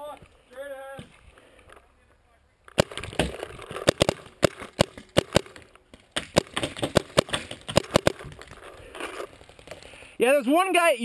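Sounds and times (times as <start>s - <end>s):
paintball markers firing: 2.7s - 9.8s.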